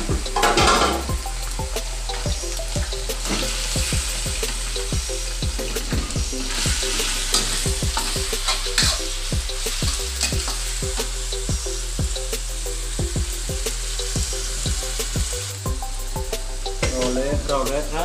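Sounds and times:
steady sizzle: 0.0s - 18.0s
metal spatula scraping wok: 5.7s - 10.8s.

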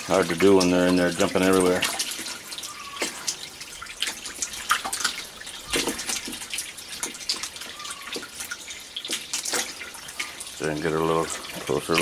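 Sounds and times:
water splashing and dripping: 0.0s - 12.0s
fish thrashing at surface: 1.8s - 10.4s.

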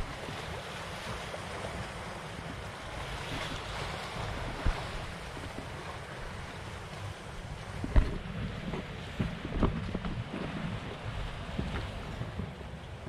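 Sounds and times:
sea waves splashing on concrete: 0.0s - 13.0s
wind buffeting microphone: 0.0s - 13.0s.

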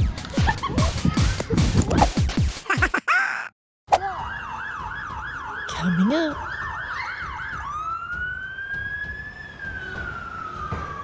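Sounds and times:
fire engine siren: 4.0s - 11.0s.

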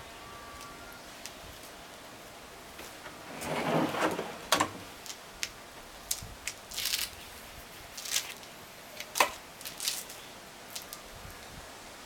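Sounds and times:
drawer clicks and rattles: 3.0s - 4.9s.

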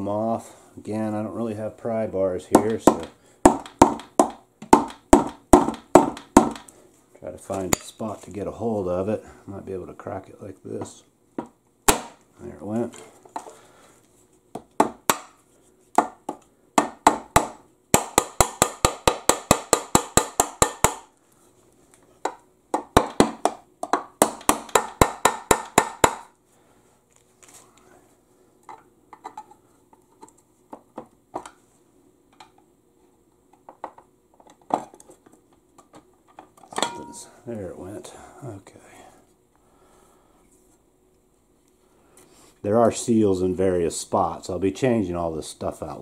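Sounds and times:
hammer tapping on pry bar: 2.6s - 6.7s, 16.0s - 21.1s, 22.2s - 26.3s.

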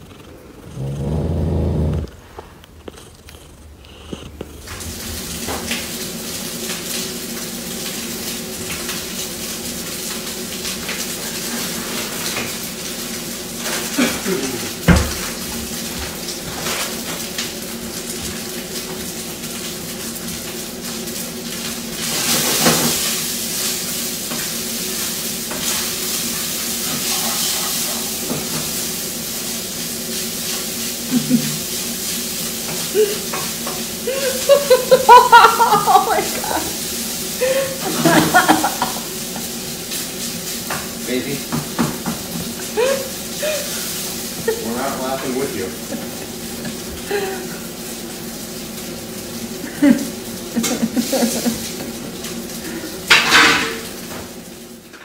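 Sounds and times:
cat lapping water: 0.0s - 5.3s.

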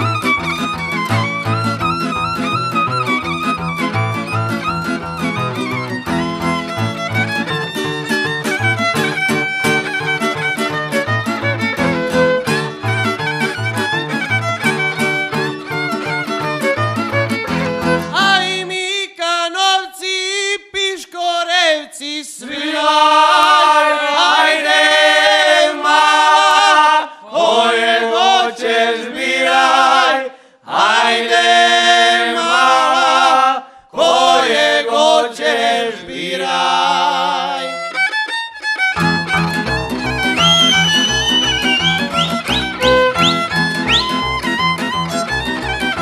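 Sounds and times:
bass guitar: 0.0s - 18.2s, 39.0s - 46.0s
male group singing in harmony: 22.4s - 37.7s.

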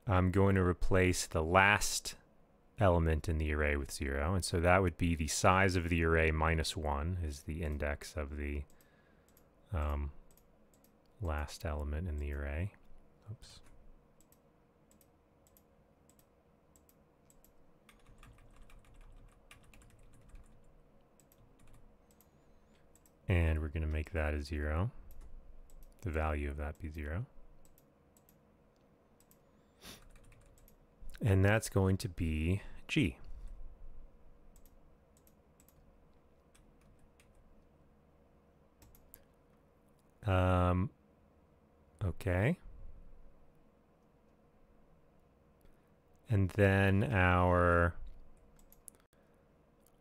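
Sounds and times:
faint steady hum: 0.0s - 50.0s
keyboard and mouse clicking: 10.3s - 11.2s, 13.6s - 23.2s, 25.1s - 26.9s, 27.6s - 28.4s, 30.0s - 30.8s, 34.5s - 35.8s, 38.8s - 39.3s, 48.0s - 49.1s.

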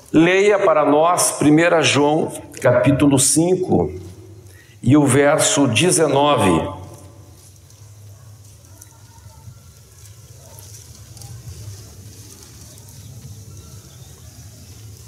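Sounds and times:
microphone hiss: 0.0s - 7.2s.

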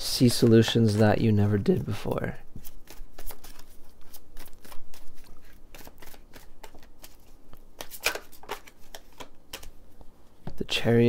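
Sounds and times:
cards being shuffled: 2.6s - 9.8s.

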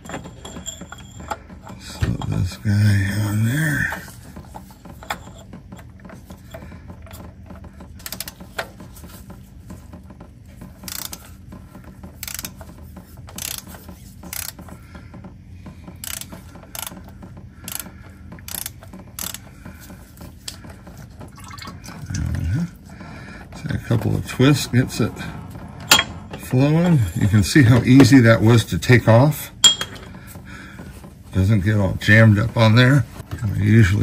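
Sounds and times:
ratchet clicking: 10.8s - 11.2s, 12.2s - 12.6s, 13.3s - 14.6s, 16.0s - 17.0s, 17.7s - 19.4s.

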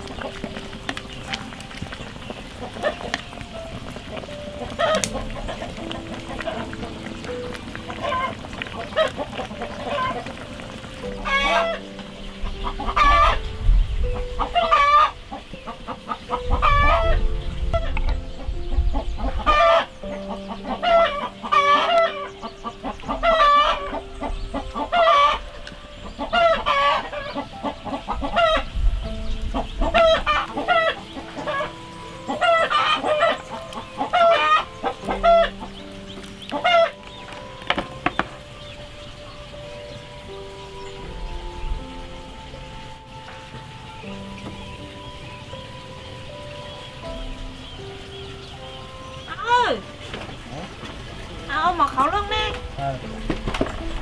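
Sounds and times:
chickens clucking: 0.0s - 54.0s.

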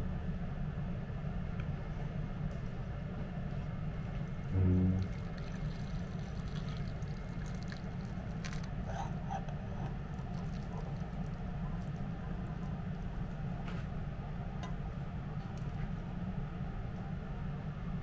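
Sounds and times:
steady low hum: 0.0s - 18.0s
noodles and broth pouring into bowl: 4.2s - 8.9s, 10.0s - 13.7s.

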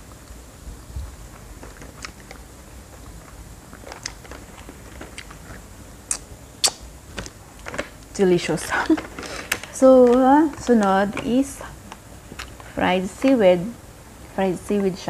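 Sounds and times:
crunching crisp snack: 1.3s - 8.1s.

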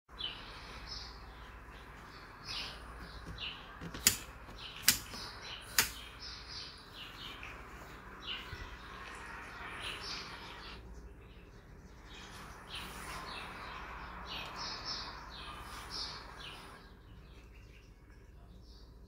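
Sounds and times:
sharp clicks: 3.3s - 6.1s.

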